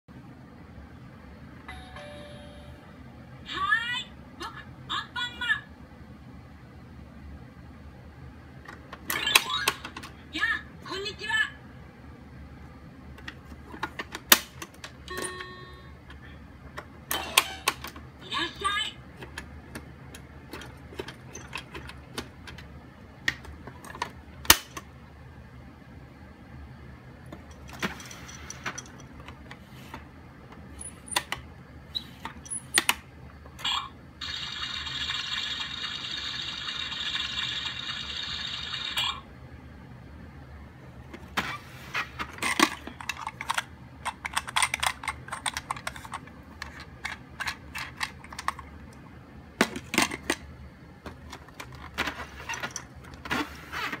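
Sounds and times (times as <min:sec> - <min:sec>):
steady electronic toy sound: 0:33.8 - 0:39.3
plastic toy clicks and clattering: 0:42.4 - 0:48.7.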